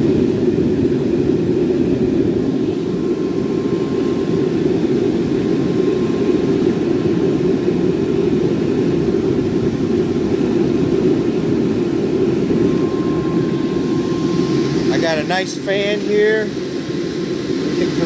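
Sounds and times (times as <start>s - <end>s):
forge burner rushing: 0.0s - 18.0s.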